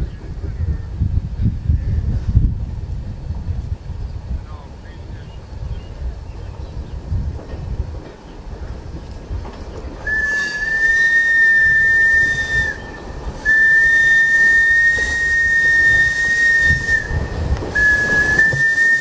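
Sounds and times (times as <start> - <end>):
low rumble of train rolling: 0.0 - 19.0
train whistle blasts: 10.0 - 19.0.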